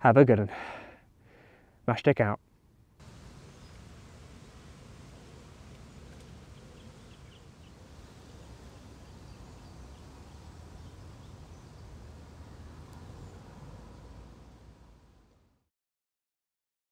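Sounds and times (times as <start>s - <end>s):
low background rumble: 3.0s - 15.3s
faint bird chirps: 3.1s - 4.0s, 5.1s - 11.9s.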